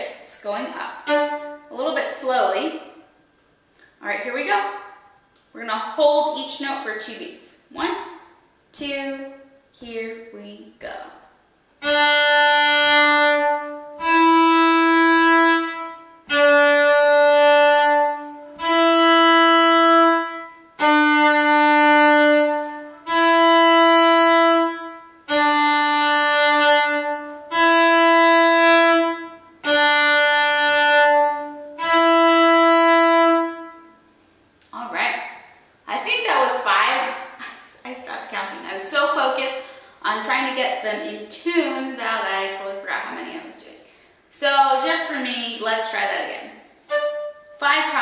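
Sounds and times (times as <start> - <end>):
bowed cello long notes: 1.0 - 1.7, 11.8 - 34.0, 46.9 - 47.6.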